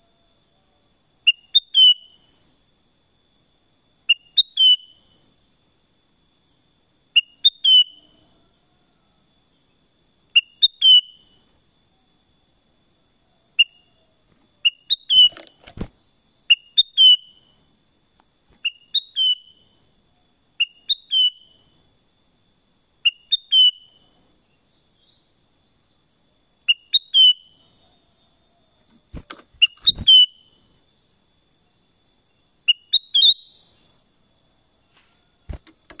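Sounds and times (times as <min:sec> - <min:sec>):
bird singing bright phrases: 0:14.6 - 0:17.4, 0:18.6 - 0:19.7, 0:28.9 - 0:30.7, 0:32.7 - 0:33.6.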